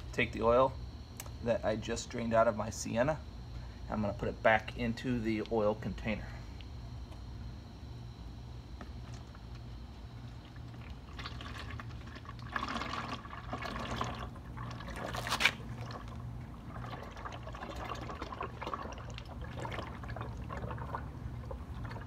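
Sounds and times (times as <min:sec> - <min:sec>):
low steady hum: 0:00.0 - 0:22.0
oil pouring through a funnel: 0:08.1 - 0:22.0.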